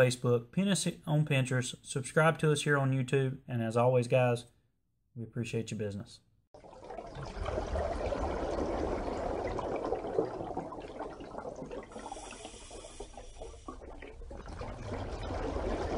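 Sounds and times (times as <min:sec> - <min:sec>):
rushing bubbling water: 0:06.6 - 0:15.9.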